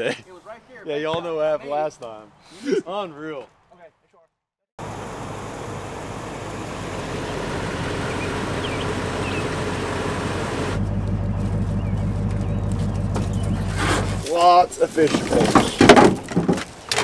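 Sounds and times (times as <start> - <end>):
pickup truck engine idling: 4.8 - 14.2
vehicle engines idling: 4.8 - 15.8.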